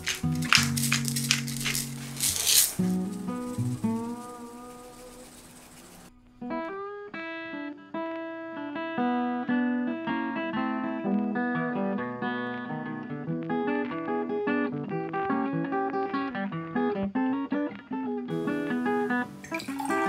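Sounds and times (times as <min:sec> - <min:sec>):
acoustic guitar picking melody: 0:00.0 - 0:20.0.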